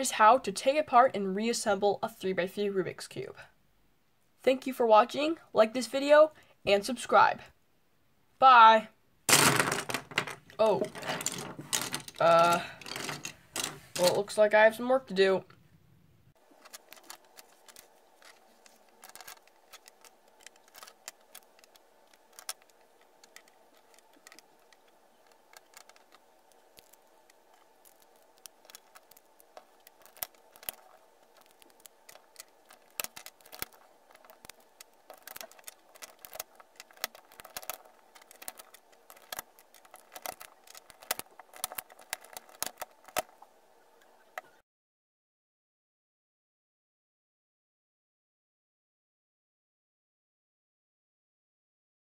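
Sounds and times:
faint steady hum: 0.0s - 44.6s
plastic cube pieces clicking: 9.3s - 14.2s, 16.5s - 43.4s.

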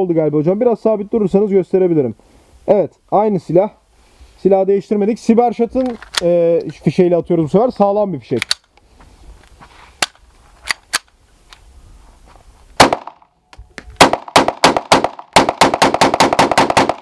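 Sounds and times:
pistol shots: 12.8s - 13.2s, 14.0s - 17.0s
rapid string of pistol shots: 12.8s - 13.2s, 14.0s - 17.0s.

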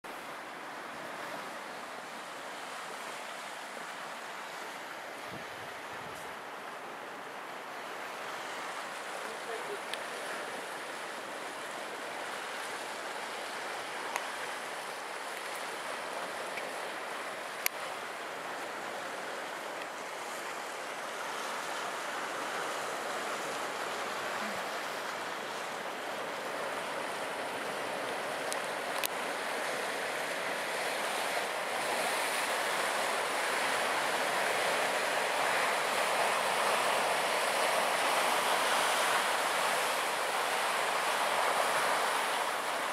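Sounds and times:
surf breaking over rocks: 8.0s - 42.9s.

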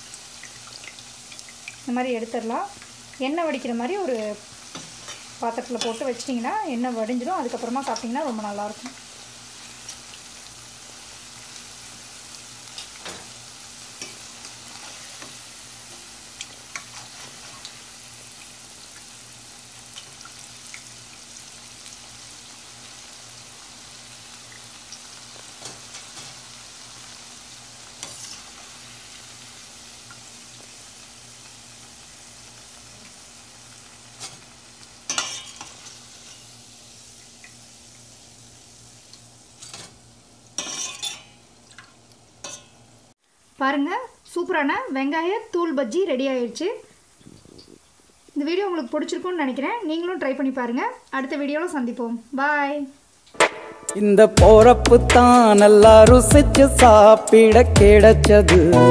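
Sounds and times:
food sizzling in hot oil: 0.0s - 57.6s
spoon scraping steel pan: 40.6s - 41.4s.

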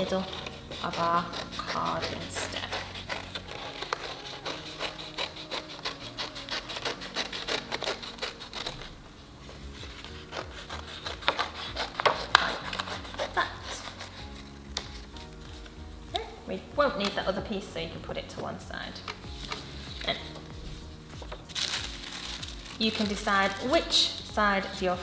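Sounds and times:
card rustling: 19.0s - 24.2s.

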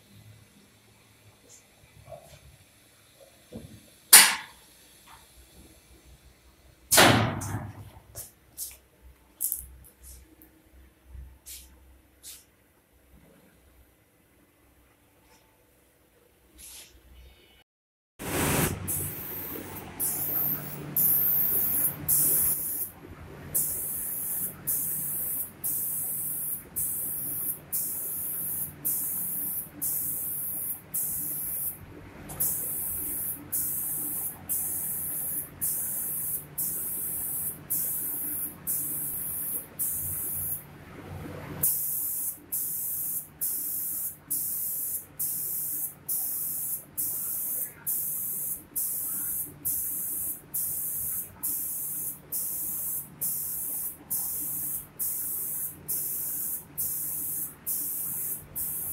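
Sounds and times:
spray gun hissing in pulses: 18.2s - 22.9s, 23.6s - 40.6s, 41.6s - 58.9s
low machine hum: 18.7s - 24.2s.

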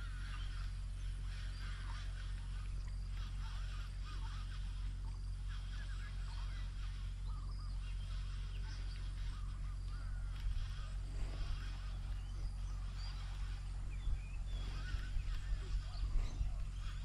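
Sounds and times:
birds chirping: 0.0s - 17.0s
thin high bird calls: 0.0s - 17.0s.

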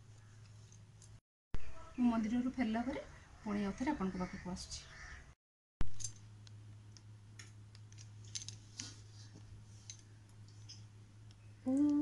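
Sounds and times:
woman humming a held note: 11.6s - 12.0s.

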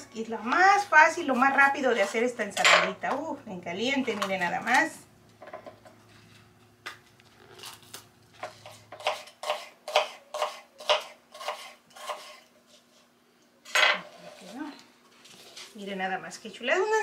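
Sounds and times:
knife slicing onion on cutting board: 8.4s - 12.4s.

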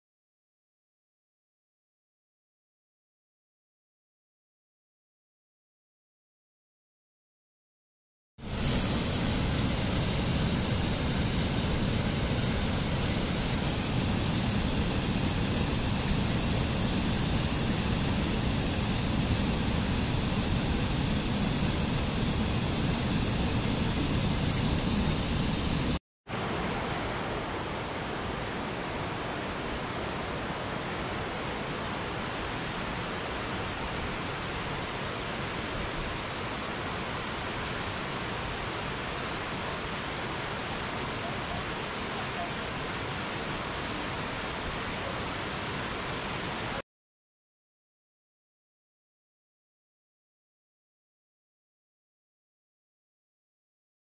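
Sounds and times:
waterfall rushing: 8.4s - 46.8s.

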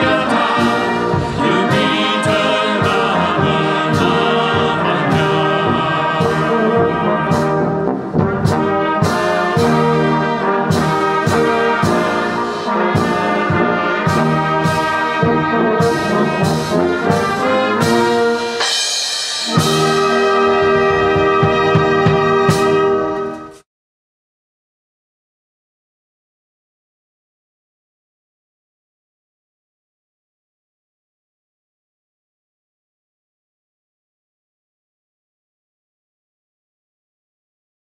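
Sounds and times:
brass band playing a hymn: 0.0s - 23.6s.

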